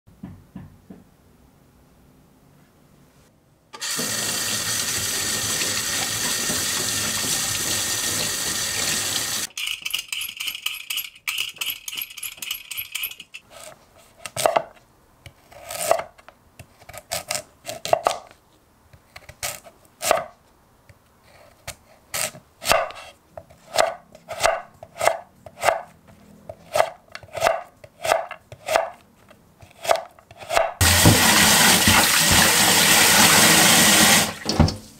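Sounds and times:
knife cutting on wooden board: 0:21.5 - 0:25.9, 0:26.5 - 0:29.0, 0:29.6 - 0:30.8.

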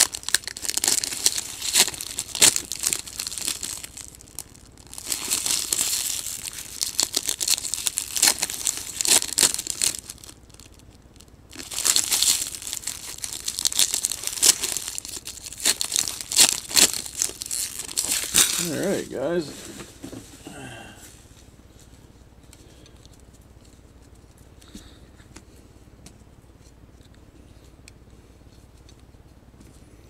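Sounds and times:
foil wrappers tearing and crinkling: 0:00.0 - 0:19.5.

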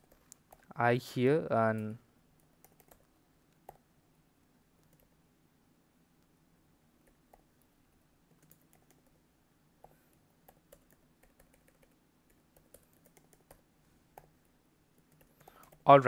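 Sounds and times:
computer keyboard typing: 0:01.8 - 0:03.8, 0:08.3 - 0:09.2, 0:09.8 - 0:13.6, 0:15.0 - 0:15.9.

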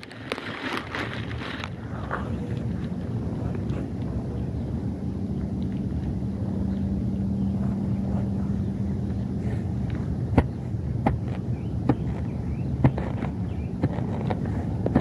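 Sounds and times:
rumble: 0:00.0 - 0:15.0
steady low hum: 0:00.0 - 0:15.0
weeding tool jabbing into lawn: 0:09.8 - 0:15.0.

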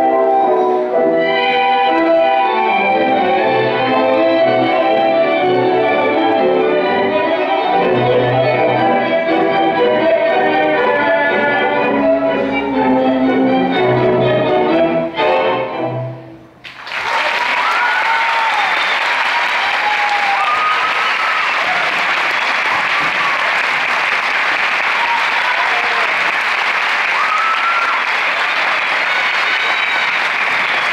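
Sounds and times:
tango music chord: 0:00.0 - 0:16.4
audience applause: 0:16.6 - 0:30.9
audience cheering: 0:16.8 - 0:30.9.

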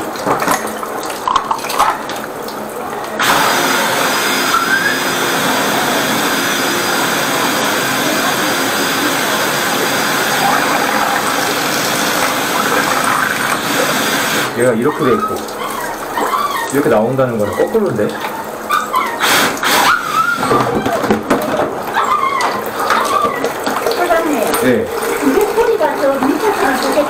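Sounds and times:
water churning and splashing in drain: 0:00.0 - 0:27.0
high-pressure drain jetter running: 0:01.7 - 0:27.0
hose knocking in drain: 0:03.2 - 0:15.6, 0:19.0 - 0:27.0.

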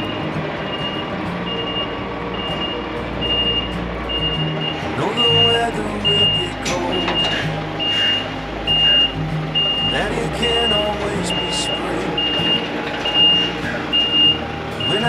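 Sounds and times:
diesel truck engines idling: 0:00.0 - 0:15.0
truck reversing alarm beeping: 0:00.0 - 0:15.0
short rising squeal: 0:07.0 - 0:10.0, 0:11.3 - 0:15.0.

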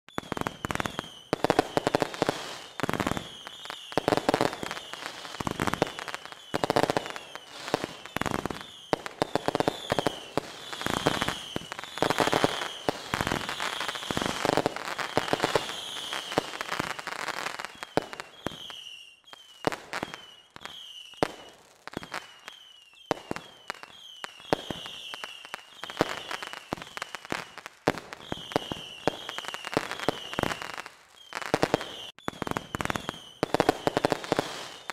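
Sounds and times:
rocket whistles: 0:00.1 - 0:16.6, 0:17.6 - 0:27.1, 0:28.2 - 0:34.9
fireworks bangs and crackling: 0:00.1 - 0:34.9.

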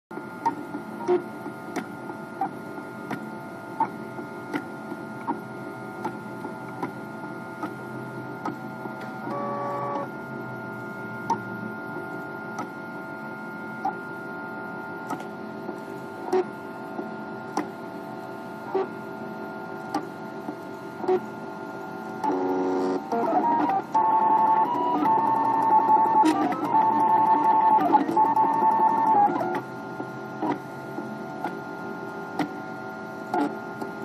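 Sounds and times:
printer stepper motors whining: 0:00.2 - 0:34.0
printer clicking: 0:23.0 - 0:29.6.

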